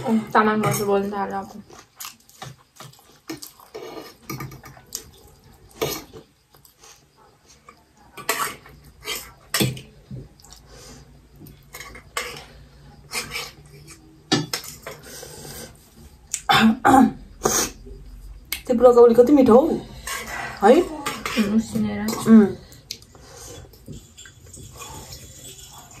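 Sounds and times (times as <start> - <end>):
cutlery clinking on metal plates: 23.8 - 26.0.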